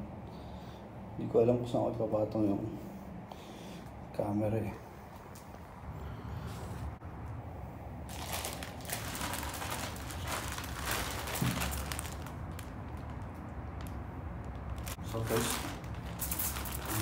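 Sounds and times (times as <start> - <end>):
plastic mailer bag crinkling: 8.1 - 17.0.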